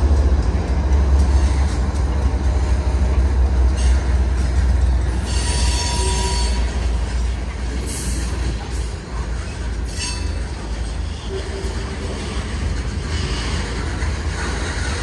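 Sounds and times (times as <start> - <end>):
freight train rumbling: 0.0 - 15.0
train wheels squealing: 3.6 - 15.0.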